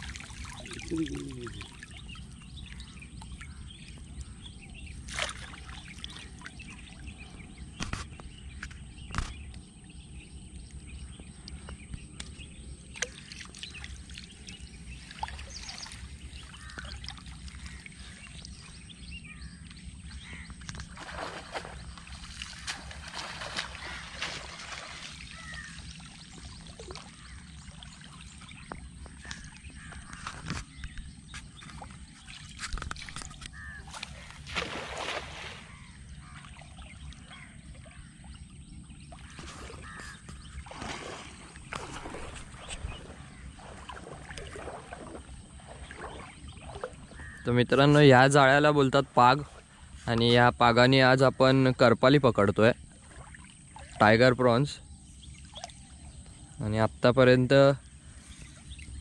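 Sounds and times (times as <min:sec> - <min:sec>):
water splashing and dripping: 0:00.0 - 0:09.3, 0:11.4 - 0:18.8, 0:20.5 - 0:35.7, 0:39.1 - 0:48.4, 0:52.6 - 0:56.4.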